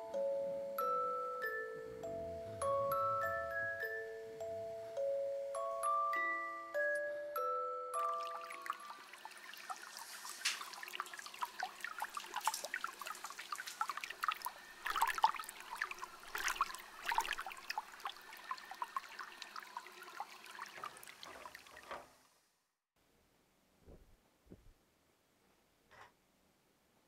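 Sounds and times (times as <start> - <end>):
water splashing and dripping: 8.0 - 22.0
water running into bathtub: 8.0 - 22.1.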